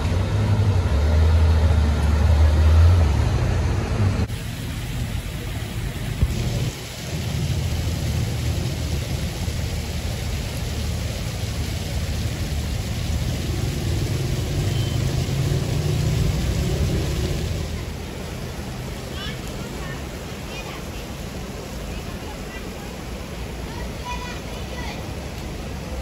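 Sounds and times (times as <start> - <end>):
fountain splashing: 0.0 - 26.0
traffic engines rumbling: 0.0 - 26.0.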